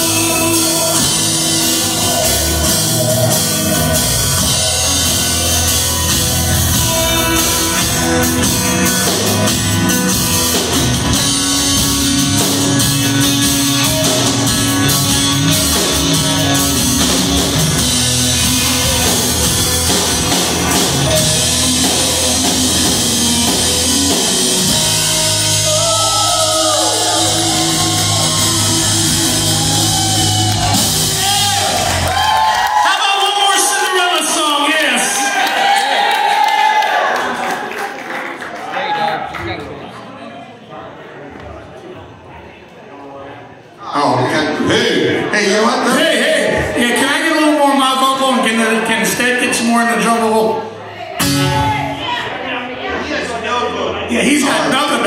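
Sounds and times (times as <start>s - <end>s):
rock band playing live: 0.0s - 35.8s, 45.2s - 52.4s
guitar notes with pitch bends: 51.2s - 52.3s.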